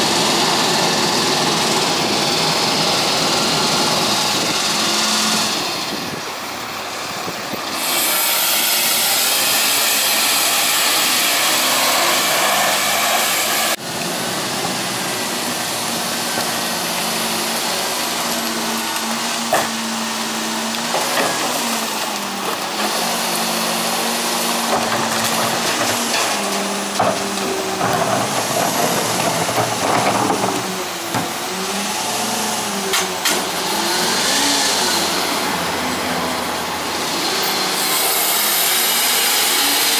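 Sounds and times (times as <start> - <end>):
garbage truck engine hiss: 0.0 - 39.9
hydraulic whine: 0.0 - 39.9
carts clanking into hopper: 24.5 - 31.4.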